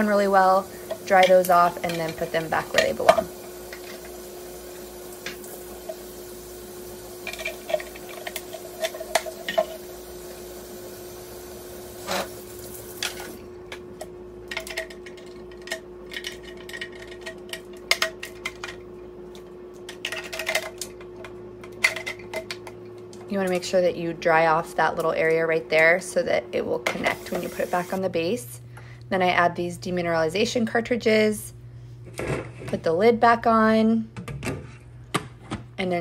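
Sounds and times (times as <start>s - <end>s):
water running: 0.0s - 13.5s, 26.7s - 28.1s
plastic parts clattering in sink: 0.9s - 4.1s, 7.2s - 9.8s, 14.5s - 18.8s, 19.9s - 22.6s.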